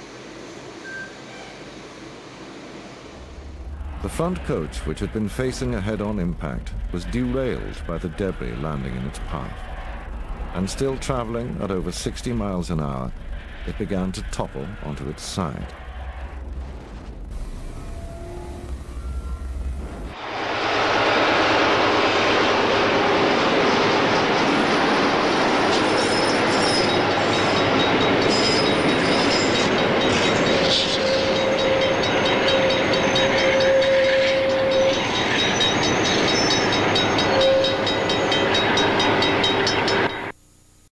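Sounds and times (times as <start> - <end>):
train wheels rushing on rail: 0.0 - 40.3
train horn: 17.8 - 23.1, 30.5 - 40.2.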